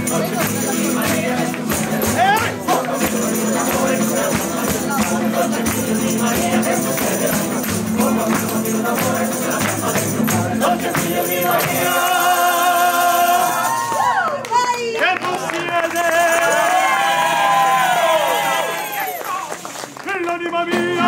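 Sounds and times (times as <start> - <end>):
strummed acoustic guitars: 0.0 - 14.0, 15.7 - 21.0
tambourine: 0.0 - 14.0, 15.9 - 19.4
group singing: 0.0 - 14.2.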